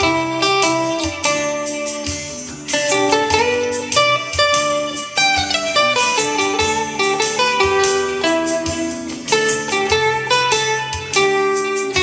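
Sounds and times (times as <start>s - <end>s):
acoustic guitar plucked melody: 0.0s - 12.0s.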